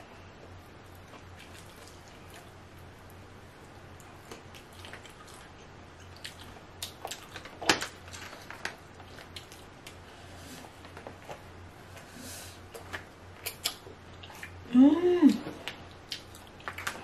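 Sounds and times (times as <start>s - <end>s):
wet squishing: 0.8s - 10.0s.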